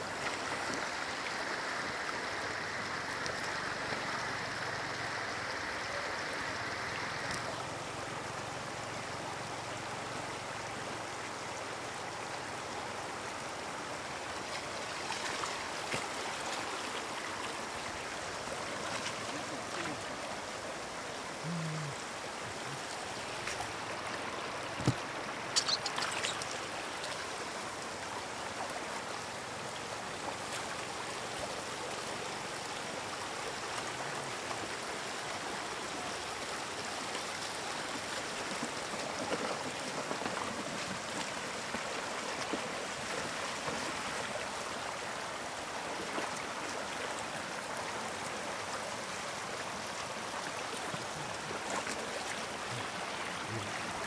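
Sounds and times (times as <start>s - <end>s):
water rushing over stones: 0.0s - 54.0s
knocks and splashes: 24.7s - 26.5s.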